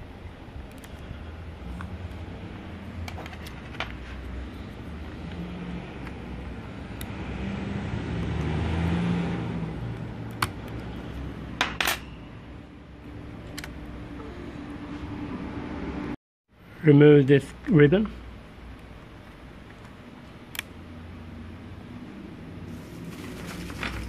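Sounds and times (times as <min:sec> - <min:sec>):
rubbing handling noise: 0:02.9 - 0:05.3.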